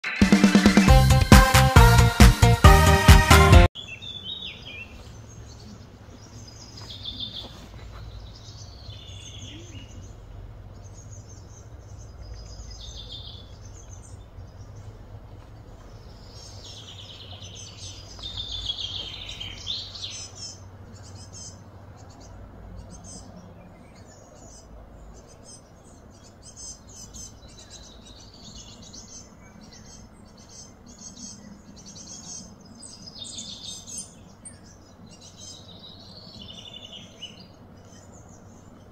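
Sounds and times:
wild birds chirping: 3.7 - 38.9
low background rumble: 8.0 - 33.1.

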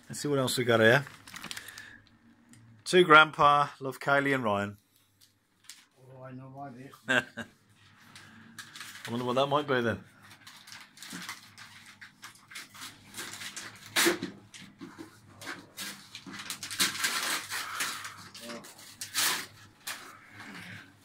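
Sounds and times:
wrapping paper crinkling and tearing: 0.5 - 2.2, 7.9 - 14.6, 15.4 - 20.8.

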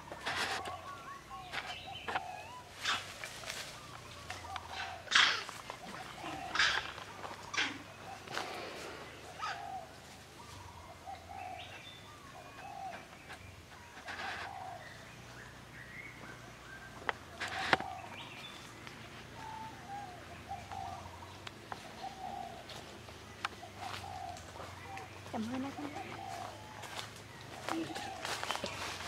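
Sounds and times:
low animal coos: 0.0 - 11.7, 23.6 - 28.9.

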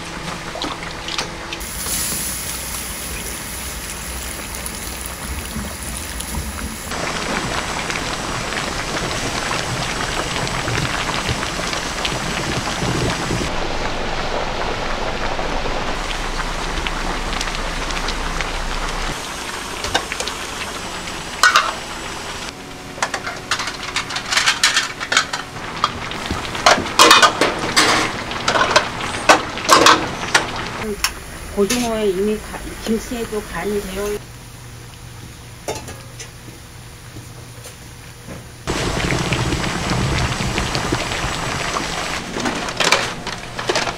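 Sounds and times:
pots bubbling: 0.0 - 43.9
metal pots clanking: 21.4 - 21.8, 26.6 - 30.5, 35.7 - 36.3.

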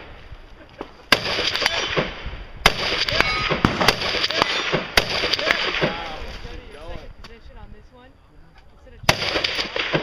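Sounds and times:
rifle shots echoing: 1.1 - 6.2, 9.0 - 10.0.

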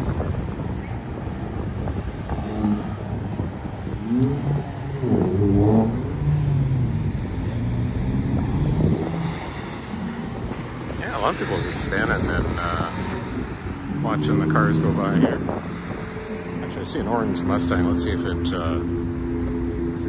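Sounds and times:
car accelerating: 0.0 - 20.0
cars driving past: 0.0 - 20.0.

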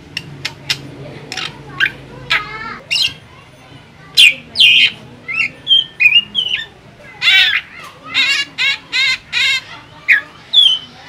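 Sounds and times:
bird harsh squawky calls: 1.3 - 3.3, 4.1 - 11.0.

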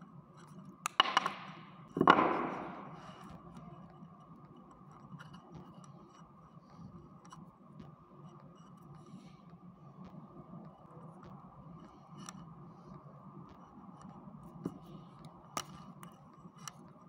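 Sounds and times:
knock: 0.9 - 3.1.

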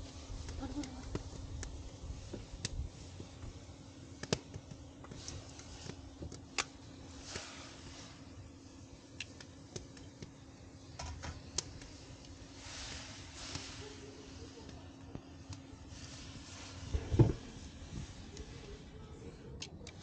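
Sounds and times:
sharp clicks and crackles: 0.4 - 1.9, 4.2 - 7.4, 9.2 - 10.4, 19.4 - 20.0
short hiss in hot pan: 12.4 - 14.8.

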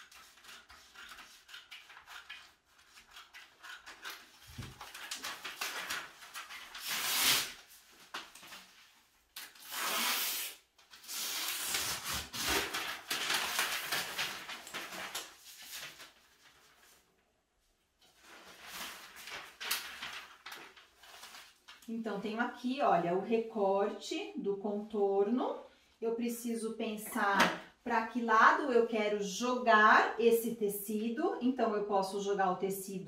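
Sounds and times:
paper rustling: 0.0 - 17.2, 18.0 - 21.9.

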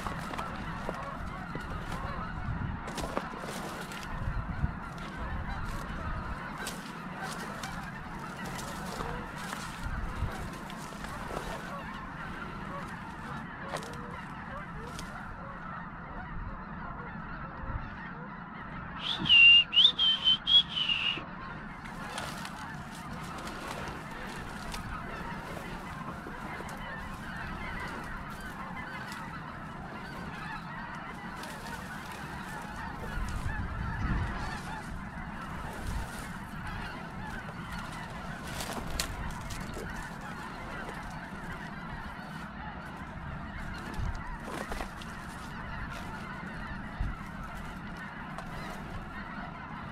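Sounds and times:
flock of geese honking: 0.0 - 49.9
goose giving high calls: 0.0 - 49.9.

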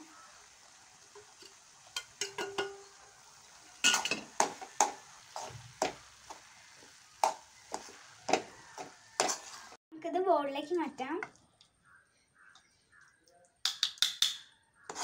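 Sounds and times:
metal spoon scraping a pan: 3.8 - 6.0, 7.7 - 9.8.

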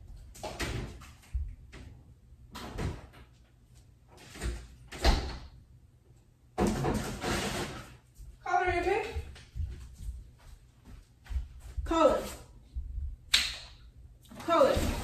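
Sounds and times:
kitchen doors opening and shutting: 0.3 - 3.4, 4.1 - 5.6, 6.6 - 7.9.

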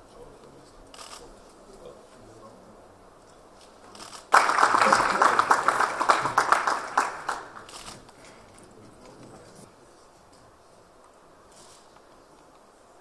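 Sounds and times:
audience applauding: 4.3 - 7.9.

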